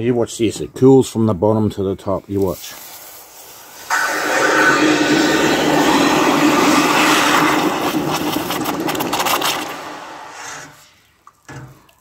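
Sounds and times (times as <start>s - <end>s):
hot metal hissing in water: 2.7s - 11.0s.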